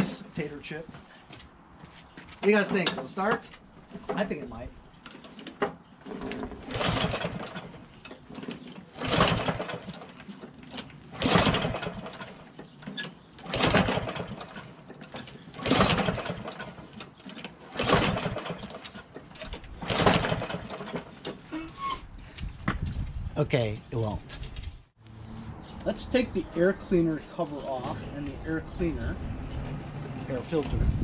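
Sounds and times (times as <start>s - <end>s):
mower recoil starter pulls: 2.4s - 21.5s
engine cranking without starting: 2.4s - 21.9s.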